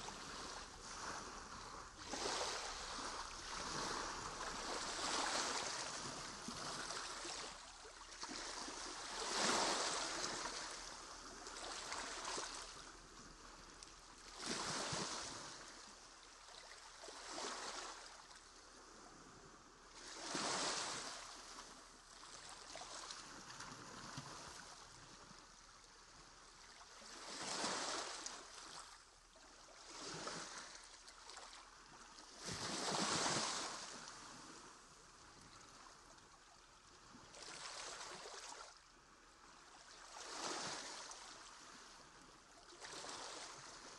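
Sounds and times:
water lapping against kayak hulls: 0.0 - 12.8.

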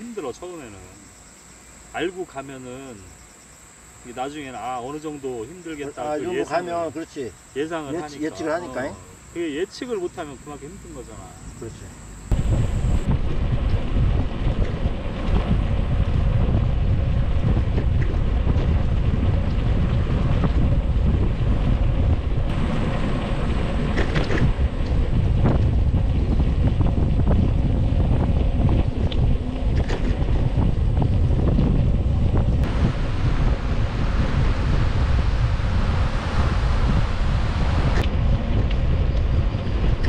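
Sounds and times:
wind buffeting microphone: 12.3 - 40.0.

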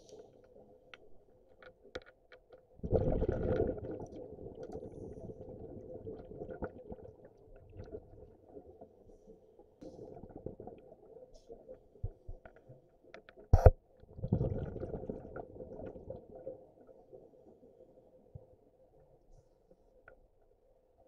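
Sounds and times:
muffled underwater bubbling: 2.8 - 8.6, 13.6 - 17.4.

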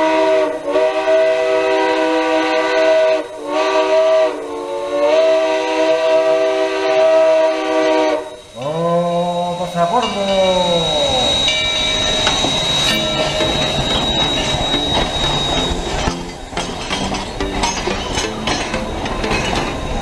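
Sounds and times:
steam locomotive whistle: 0.0 - 20.0
train cars rattling past: 5.5 - 20.0
thin high whine: 6.1 - 20.0.

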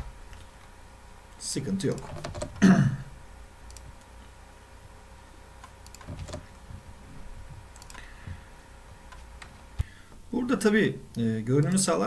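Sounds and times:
low steady hum: 0.0 - 12.0
keyboard and mouse clicks: 1.8 - 2.6, 3.7 - 4.1, 5.6 - 6.6, 7.7 - 8.1, 9.1 - 9.9, 11.1 - 11.9.

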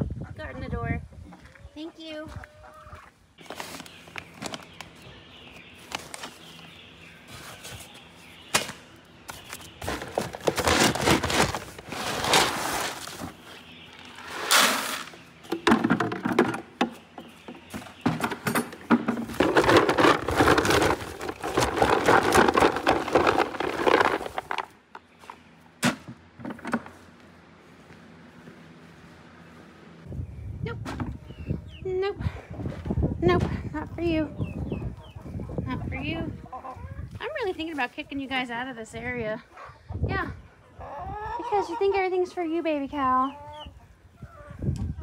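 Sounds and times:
pellets pouring into plastic bucket: 19.4 - 24.6.

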